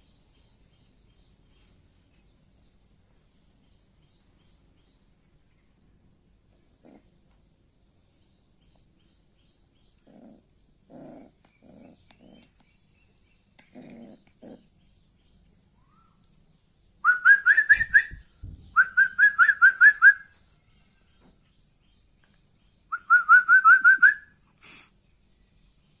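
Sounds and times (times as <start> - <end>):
animal grunting low: 10.0 - 12.6, 13.6 - 14.7.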